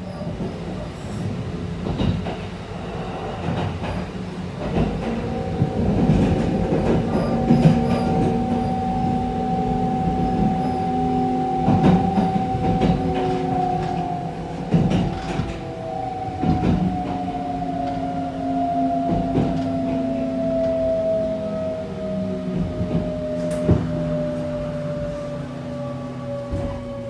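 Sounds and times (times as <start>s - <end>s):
rail joint clacks: 0.0s - 27.0s
train wheels rumbling: 0.0s - 27.0s.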